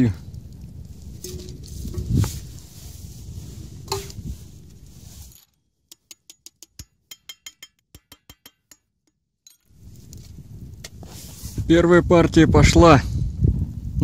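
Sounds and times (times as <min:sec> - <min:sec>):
outdoor noise: 0:00.0 - 0:12.8
scrap lead clinking into tin can: 0:03.9 - 0:04.3, 0:05.2 - 0:08.9.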